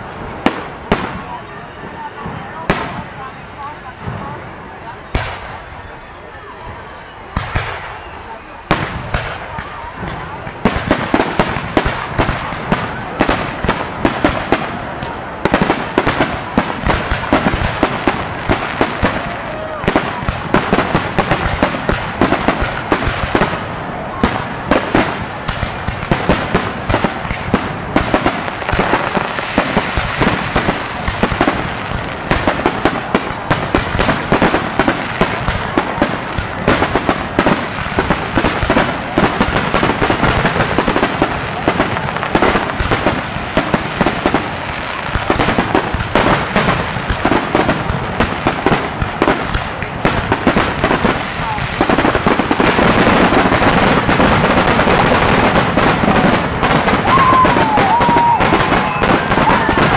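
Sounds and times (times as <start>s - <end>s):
fireworks bursting: 0.0s - 59.9s.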